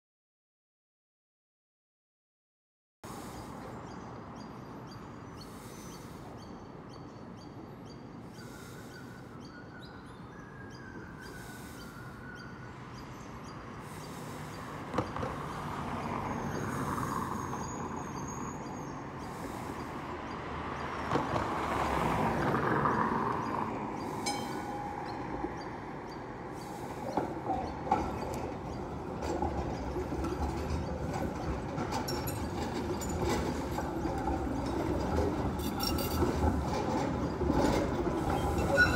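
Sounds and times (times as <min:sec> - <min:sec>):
tram rumbling on track: 0:03.1 - 0:38.9
wheels knocking on rail joints: 0:13.8 - 0:17.8, 0:19.3 - 0:38.9
high wheel squeal: 0:24.0 - 0:25.7, 0:26.6 - 0:38.9.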